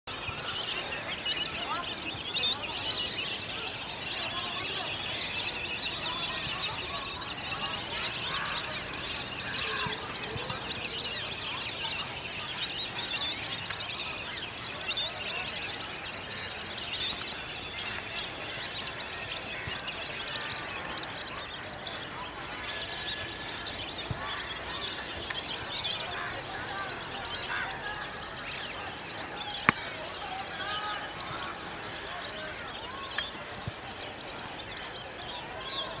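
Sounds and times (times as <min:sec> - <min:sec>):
flock of birds chirping: 0:00.0 - 0:36.0.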